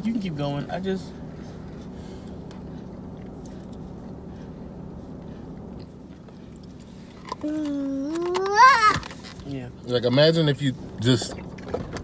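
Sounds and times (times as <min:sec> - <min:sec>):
car engine hum inside cabin: 0:00.0 - 0:12.0.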